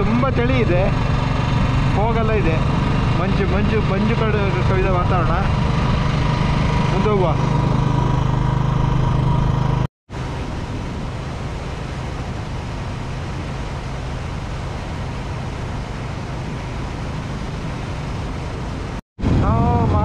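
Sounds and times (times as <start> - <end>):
motorcycle engine: 0.0 - 19.8
wind and road noise: 0.0 - 20.0.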